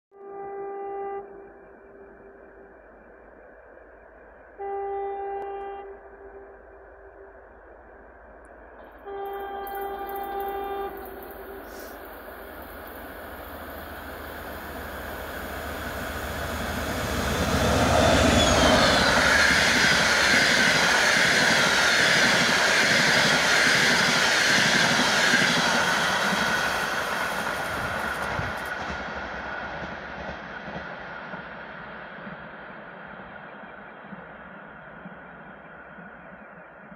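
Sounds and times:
train horn blast: 0.1s - 2.6s, 4.6s - 7.4s, 8.8s - 12.7s
coaches rolling on rails: 5.3s - 36.9s
locomotive engine and wheel noise: 5.3s - 36.9s.

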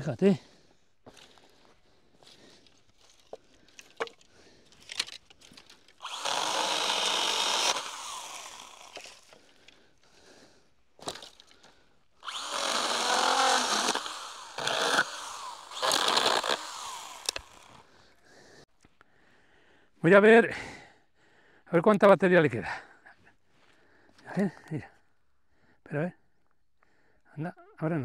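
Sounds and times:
battery saw cutting sticks: 6.0s - 9.4s, 12.2s - 17.9s.

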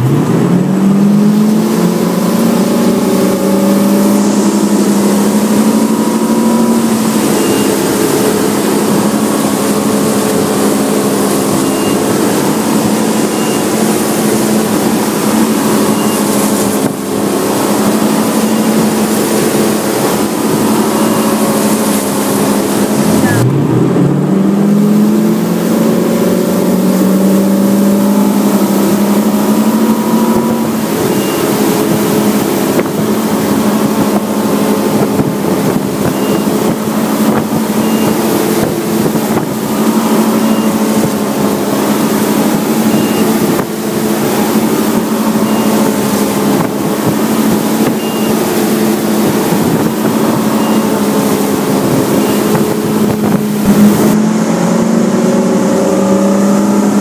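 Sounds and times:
boat engine running: 0.0s - 57.0s
wind rushing: 0.7s - 57.0s
water spray: 1.1s - 23.4s.

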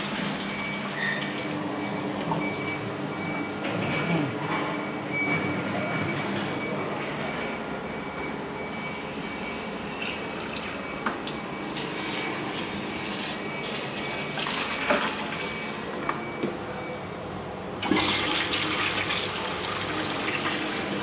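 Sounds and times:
toilet flush water rushing: 11.7s - 15.4s, 17.8s - 21.0s.

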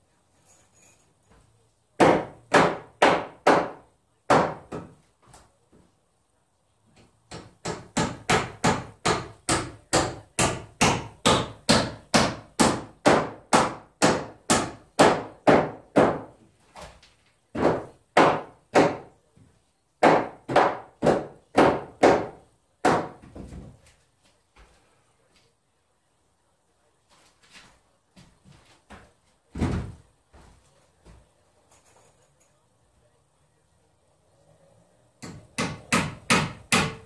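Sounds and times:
hammer striking wood: 2.0s - 5.0s, 7.3s - 16.4s, 17.5s - 19.2s, 20.0s - 23.6s, 35.2s - 37.0s.

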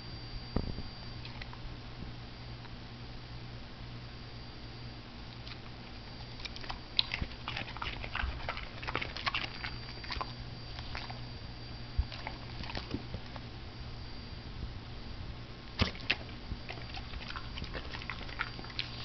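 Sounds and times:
low hum: 0.0s - 19.0s
dog crunching broccoli: 1.2s - 1.6s, 5.4s - 11.4s, 12.0s - 13.5s, 15.8s - 19.0s.

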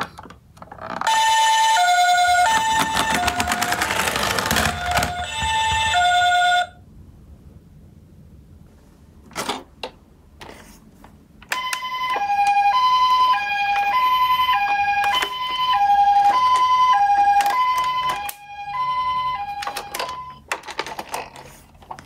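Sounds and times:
toy siren two-tone: 1.1s - 6.8s, 11.5s - 20.4s
plastic toys clicking and knocking: 2.2s - 6.1s, 14.6s - 18.4s, 19.5s - 22.0s.

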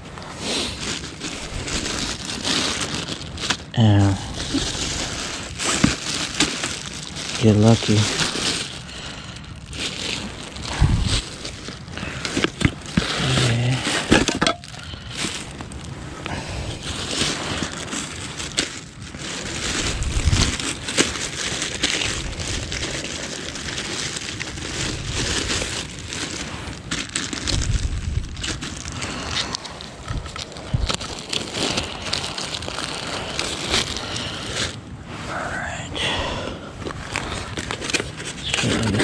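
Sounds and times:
clothing rustling and crinkling: 0.0s - 39.0s.

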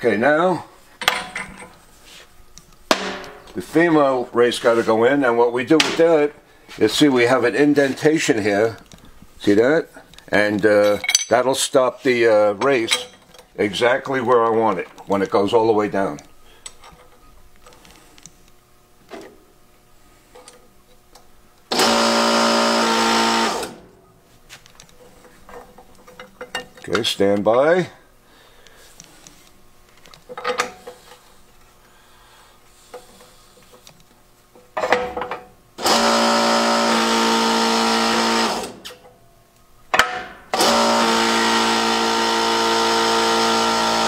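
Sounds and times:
metal clunk: 2.9s - 3.6s, 34.8s - 35.5s
power pump motor hum and hiss: 21.7s - 24.6s, 35.8s - 38.9s, 40.5s - 44.0s.

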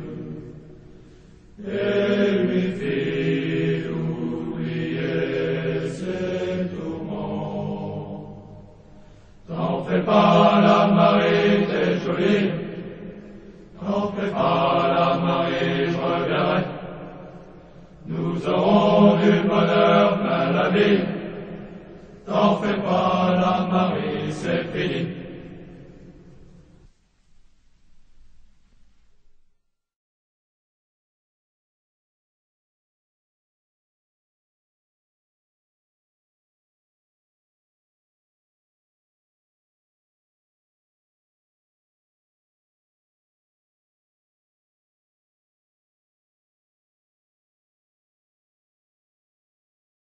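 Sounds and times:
group singing in unison: 0.0s - 0.9s, 1.6s - 26.5s.

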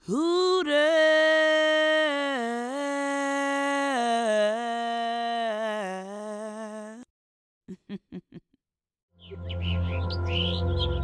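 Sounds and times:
voice holding long sung note: 0.0s - 7.1s.

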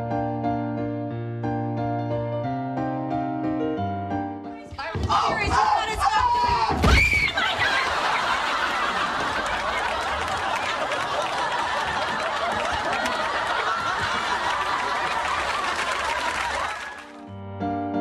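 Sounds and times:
electric piano music: 0.0s - 4.7s, 17.0s - 18.0s
studio audience laughing: 7.2s - 17.2s.

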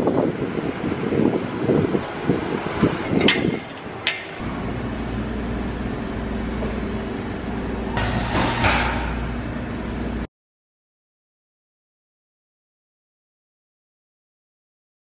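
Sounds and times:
low machine hum: 0.0s - 10.3s.

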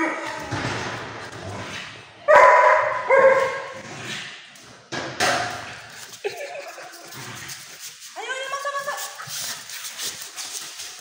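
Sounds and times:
dog barking: 2.3s - 3.8s.

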